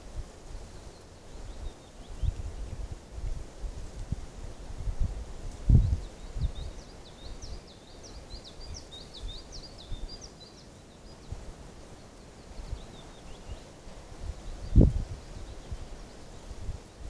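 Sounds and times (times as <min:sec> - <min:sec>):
wind rumble on microphone: 0:00.0 - 0:07.6, 0:12.5 - 0:17.0.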